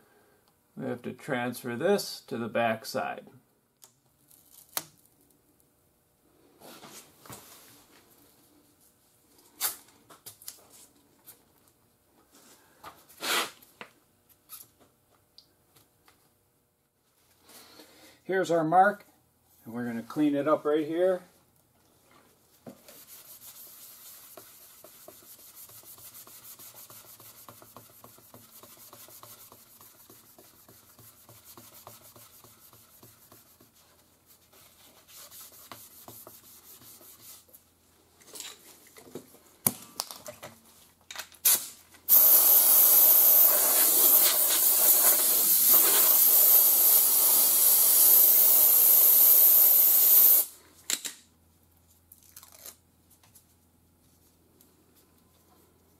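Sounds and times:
rag wiping wheel rim: 0:22.9 - 0:37.5
spray hiss: 0:42.1 - 0:50.5.

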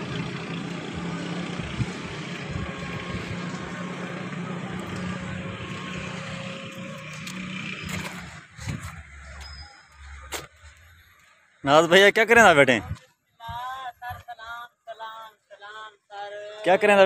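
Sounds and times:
heavy engine running: 0:00.0 - 0:11.2.

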